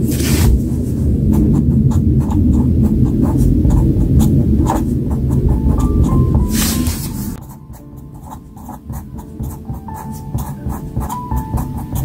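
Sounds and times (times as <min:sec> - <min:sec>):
low rumble: 0:00.0 - 0:09.2
felt-tip pen scratching on paper: 0:00.0 - 0:12.0.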